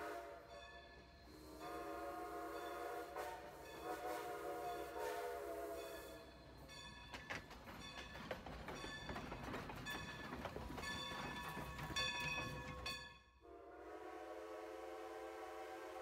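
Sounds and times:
train horn blast: 0:00.0 - 0:00.6, 0:01.3 - 0:06.2, 0:13.4 - 0:16.0
train rattling along track: 0:00.0 - 0:16.0.

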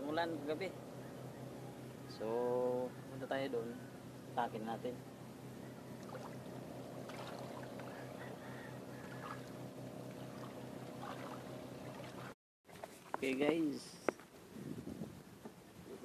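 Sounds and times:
engine humming: 0:00.0 - 0:12.4
splashes: 0:06.0 - 0:06.5, 0:07.1 - 0:08.0, 0:09.1 - 0:12.8.

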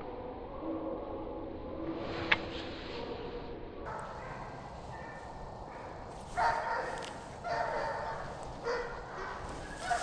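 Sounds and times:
hounds baying: 0:03.9 - 0:10.0.

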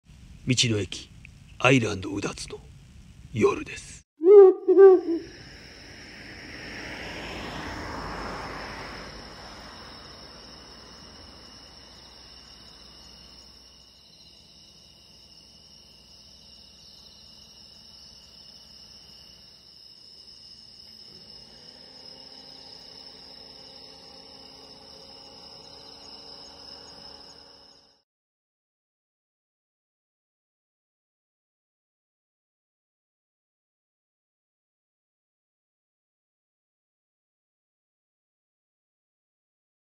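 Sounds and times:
crickets and insects trilling: 0:04.7 - 0:28.0
passing vehicle rushing: 0:05.2 - 0:11.5.

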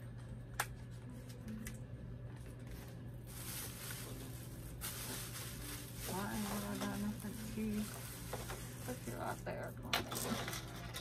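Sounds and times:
plastic and paper crinkling: 0:02.3 - 0:11.0.

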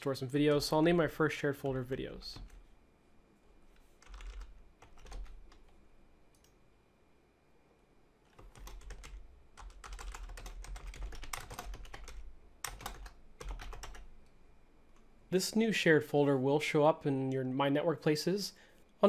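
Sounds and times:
typing on computer keyboard: 0:04.0 - 0:05.8, 0:08.3 - 0:14.1.

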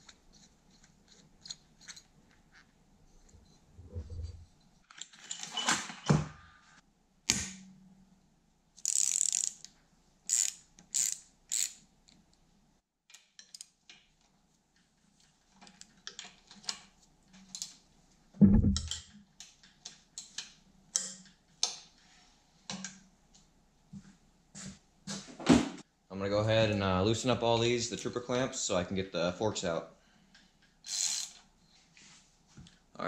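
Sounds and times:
socket ratchet clicking: 0:08.8 - 0:09.7, 0:10.3 - 0:11.8, 0:30.9 - 0:31.4.

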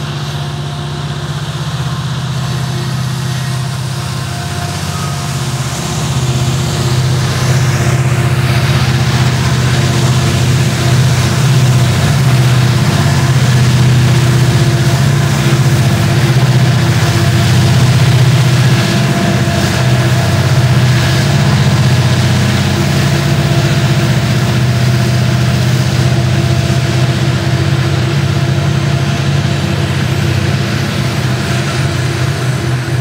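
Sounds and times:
diesel locomotive engines droning: 0:00.0 - 0:33.0
passing freight cars: 0:00.0 - 0:33.0.

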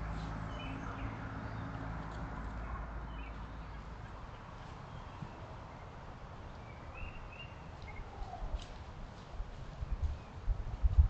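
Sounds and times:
bird chirps: 0:06.5 - 0:08.4.

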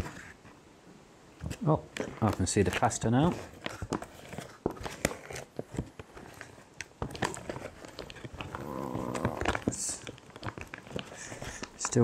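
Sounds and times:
pouch crinkling: 0:01.4 - 0:12.0
spoon stirring in food pouch: 0:01.4 - 0:12.0.

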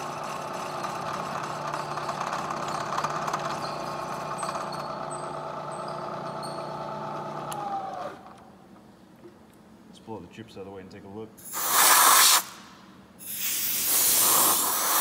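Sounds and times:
spindle winding down: 0:00.0 - 0:08.2.

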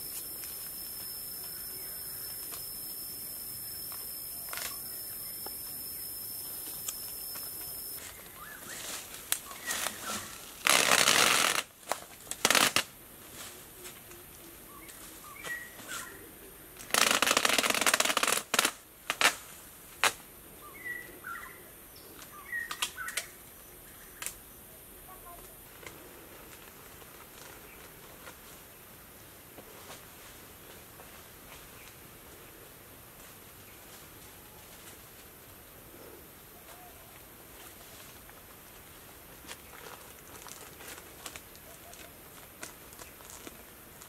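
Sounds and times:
steady high hiss: 0:00.0 - 0:44.0
plastic stretch wrap crackling: 0:09.6 - 0:12.9.

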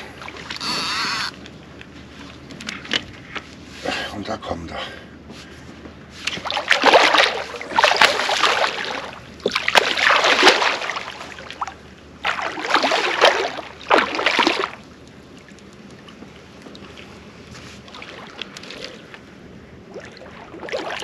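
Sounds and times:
fishing reel drag clicking: 0:00.6 - 0:01.4.

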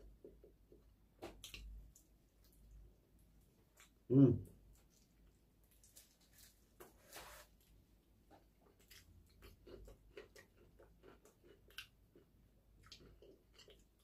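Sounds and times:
soft chewing: 0:00.0 - 0:14.0.

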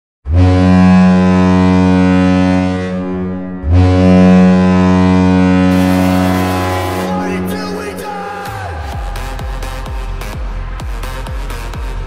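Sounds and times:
deep goal horn blasts: 0:00.3 - 0:09.0
music: 0:01.7 - 0:12.0.

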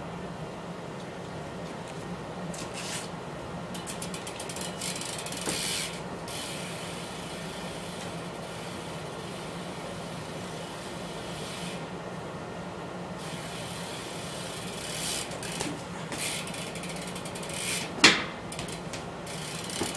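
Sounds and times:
steady hum and hiss: 0:00.0 - 0:19.9
bike hub ticking: 0:03.7 - 0:09.6, 0:13.2 - 0:19.9.

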